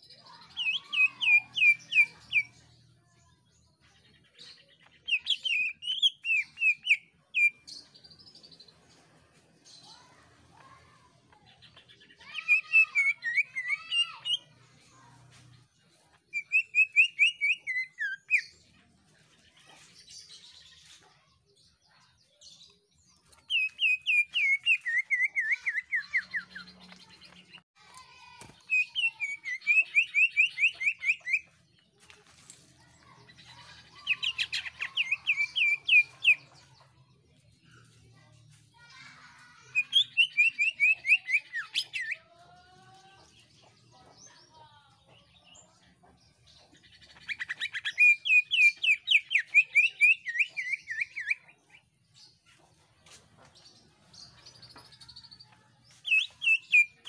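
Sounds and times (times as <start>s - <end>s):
bird singing shrill phrases: 0.1s - 2.6s, 4.4s - 8.4s, 11.4s - 15.1s, 16.2s - 18.7s, 21.6s - 27.6s, 28.2s - 31.6s, 32.8s - 36.6s, 38.8s - 42.2s, 46.8s - 51.9s, 54.1s - 57.0s.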